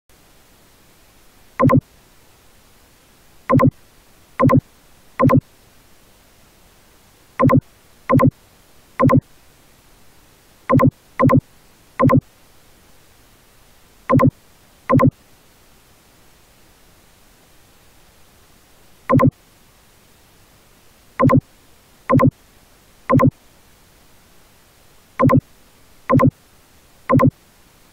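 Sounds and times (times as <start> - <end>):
faint hiss: 0.1 - 27.9
short electronic beeps: 1.6 - 1.8, 3.5 - 3.8, 4.4 - 4.6, 5.2 - 5.4, 7.4 - 8.3, 9.0 - 9.2, 10.7 - 11.4, 12.0 - 12.2, 14.1 - 14.3, 14.9 - 15.1, 19.1 - 19.3, 21.2 - 21.4, 22.1 - 22.3, 23.1 - 23.3, 25.2 - 25.4, 26.1 - 26.3, 27.1 - 27.3.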